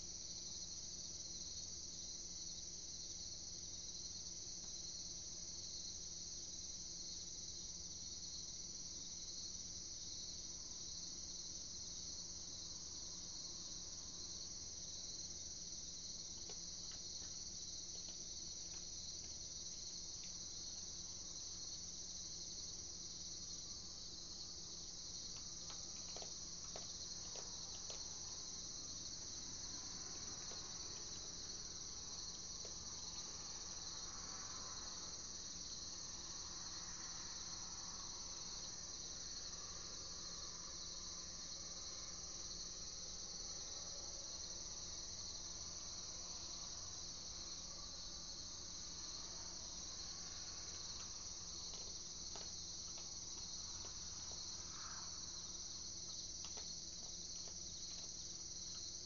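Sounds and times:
crickets trilling: 0.0s - 59.0s.

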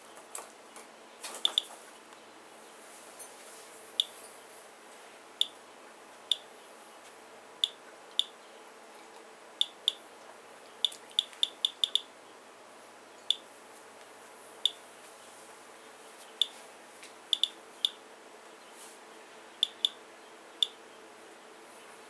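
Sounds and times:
geiger counter clicking: 7.6s - 8.3s, 9.6s - 10.0s, 10.8s - 12.1s, 17.4s - 18.0s, 19.6s - 20.0s.

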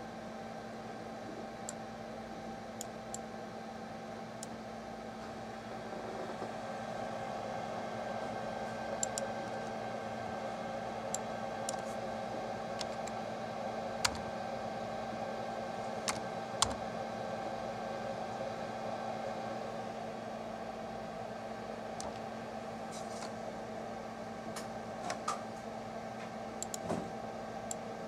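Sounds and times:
steady machine hum: 0.0s - 28.0s
computer mouse clicks: 9.0s - 9.7s, 11.1s - 11.9s, 12.8s - 13.2s, 14.0s - 14.2s, 22.0s - 22.2s, 26.6s - 26.9s.

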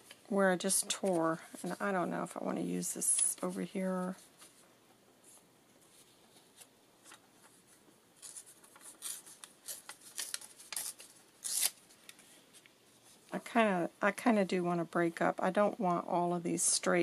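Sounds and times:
paper rustling: 3.0s - 13.2s
paper tearing: 8.2s - 11.8s.

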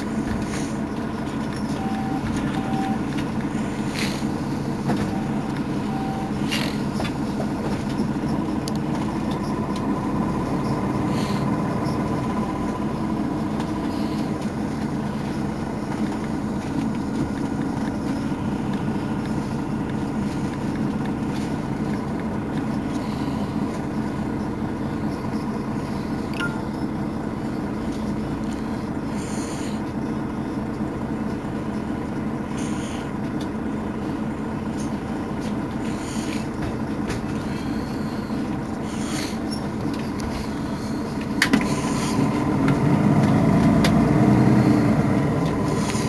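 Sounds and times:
bus diesel engine running: 0.0s - 46.0s
short high beeps: 1.8s - 3.1s, 5.1s - 6.5s, 26.3s - 26.9s.

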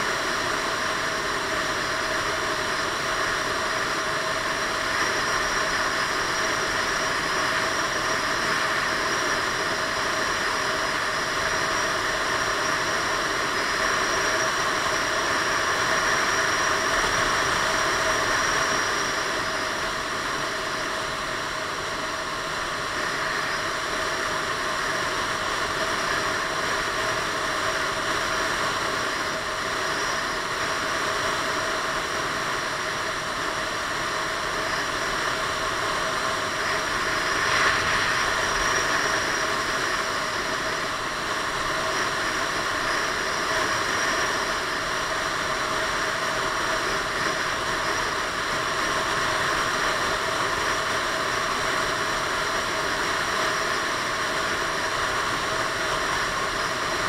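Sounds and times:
wind and road noise: 31.7s - 47.7s.

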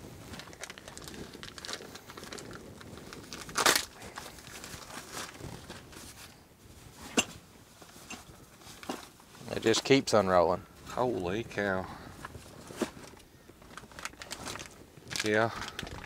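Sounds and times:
packaging crinkling and tearing: 0.3s - 6.4s, 12.2s - 16.0s.

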